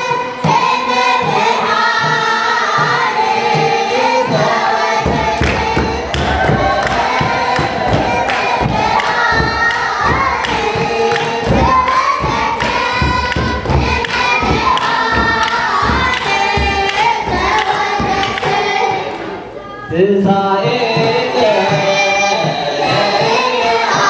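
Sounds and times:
slow drum beat: 0.0 - 19.0
crowd singing a hymn: 0.0 - 24.0.

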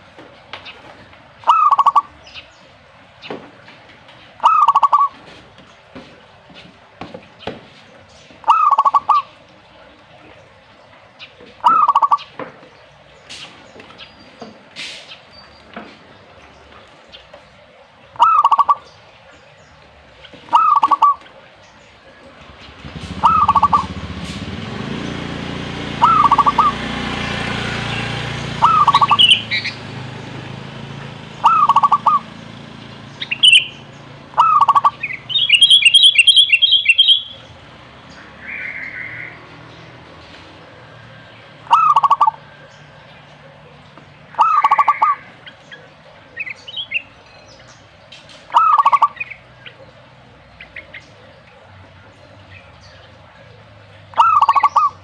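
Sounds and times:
birds chirping and trilling: 0.2 - 55.0
dove cooing: 1.4 - 2.1, 4.4 - 5.2, 8.4 - 9.3, 11.6 - 12.3, 18.2 - 18.9, 20.4 - 21.4, 22.2 - 24.0, 26.0 - 26.8, 28.6 - 29.8, 31.4 - 32.3, 33.3 - 37.4, 41.6 - 42.5, 44.3 - 47.2, 48.5 - 49.9, 53.9 - 55.0.

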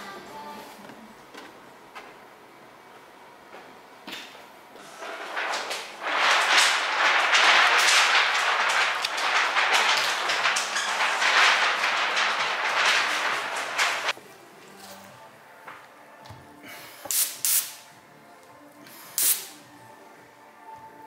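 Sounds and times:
plastic film rustling and crinkling: 4.8 - 14.2.

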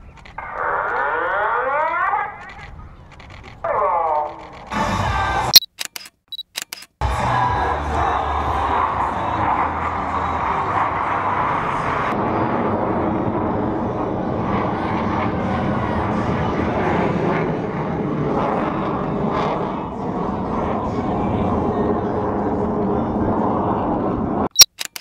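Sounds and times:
jet engines roaring overhead: 7.3 - 25.0.

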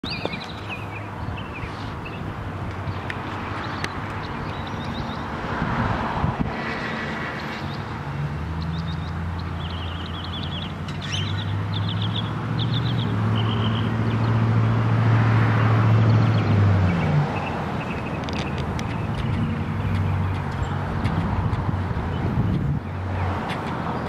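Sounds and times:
bird chirping: 0.0 - 5.3, 8.6 - 14.5, 15.6 - 21.1
vehicle engine hum: 0.0 - 24.0.

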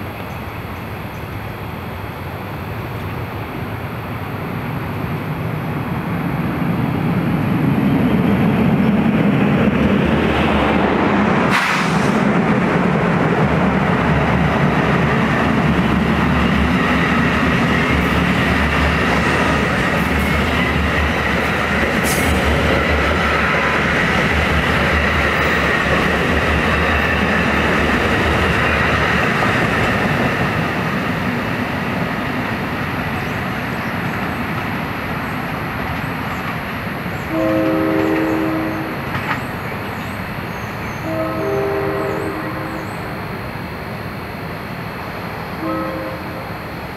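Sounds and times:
train wheels rumbling on rail: 0.0 - 46.9
train horn blast: 37.3 - 39.0, 41.0 - 43.0, 45.6 - 46.5.

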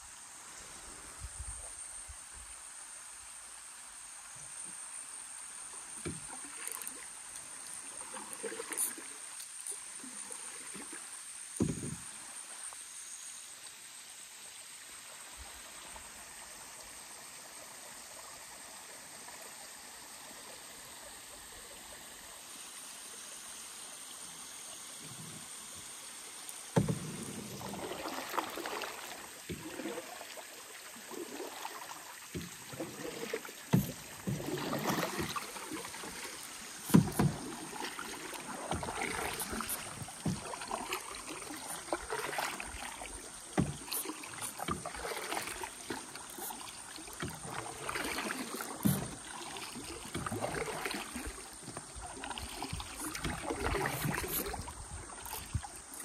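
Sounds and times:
paddle strokes splashing water: 5.7 - 12.7, 26.6 - 56.0.

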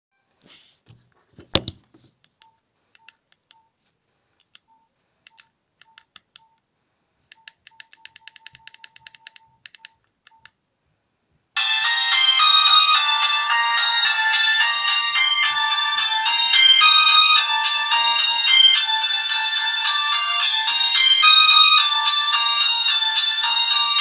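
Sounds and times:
phone keypad beeps: 7.3 - 10.5
ringtone from phone speaker: 7.4 - 10.0, 11.6 - 24.0.

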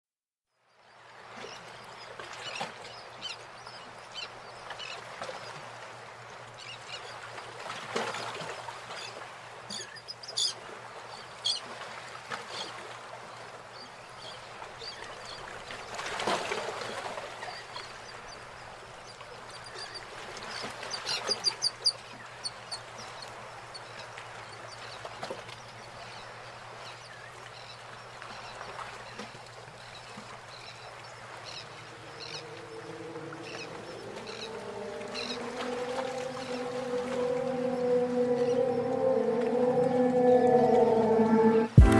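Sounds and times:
bird calls: 30.6 - 41.4.

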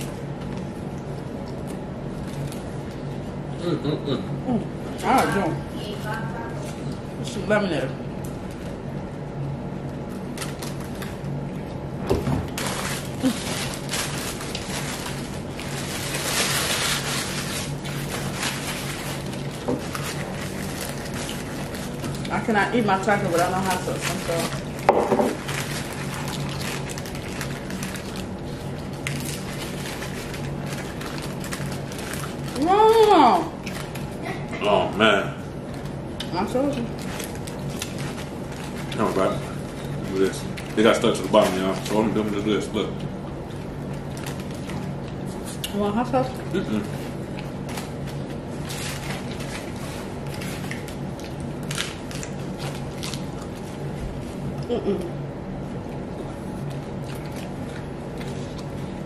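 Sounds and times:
chewing and crunching tacos: 0.0 - 5.4, 8.1 - 22.5, 23.1 - 59.0
paper wrappers rustling: 12.5 - 34.2, 36.8 - 42.7, 44.0 - 45.6, 46.7 - 53.9.

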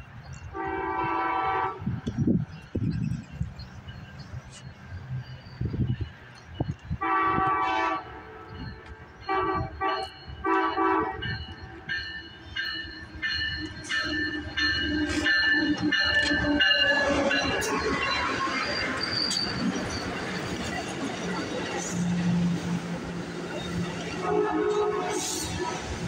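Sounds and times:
train passing close by: 0.0 - 26.0
locomotive horn blasts: 0.5 - 2.0, 7.0 - 11.6, 24.0 - 25.6.

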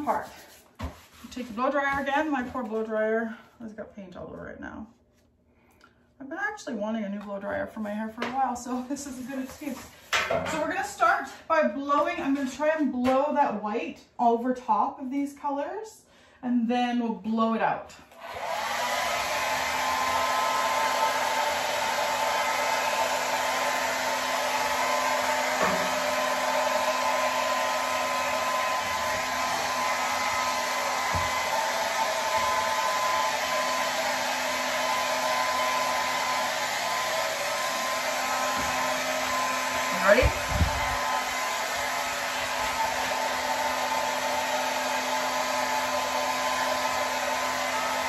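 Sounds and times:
hair dryer blowing: 0.0 - 0.5, 8.3 - 12.6, 18.1 - 48.0.

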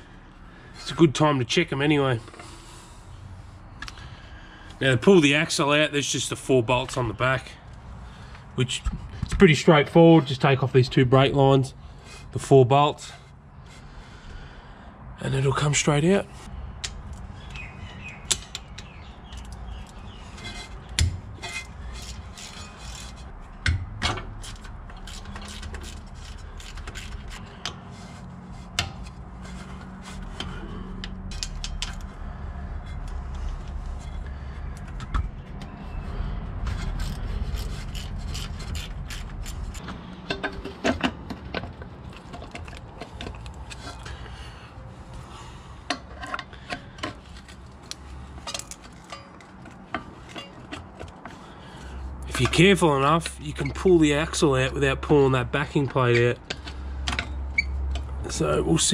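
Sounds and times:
metal tools clinking and scraping: 18.4 - 32.2, 36.7 - 44.3, 45.9 - 54.8.

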